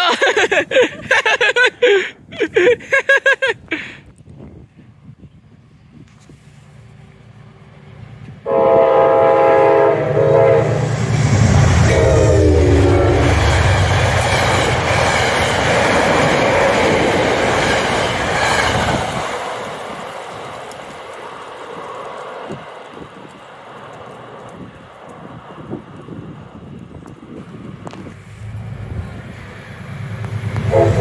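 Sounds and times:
train horn blasts: 8.4 - 13.7, 30.6 - 31.0
train wheels clattering on rails: 12.7 - 26.2.

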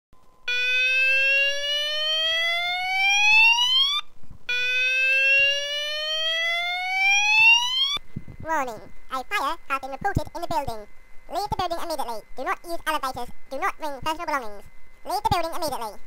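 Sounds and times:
fire alarm whoop tone: 0.4 - 8.0.

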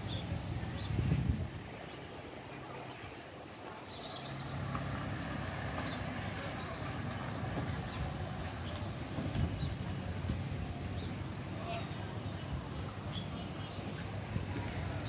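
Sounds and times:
vehicle engine humming: 4.0 - 15.0.

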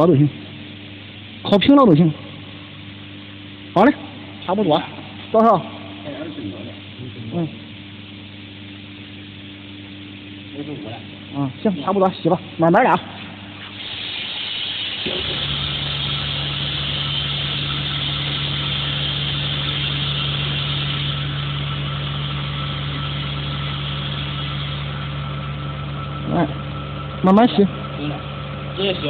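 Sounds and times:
vacuum pump humming: 0.0 - 29.0
air hissing: 2.3 - 26.2.

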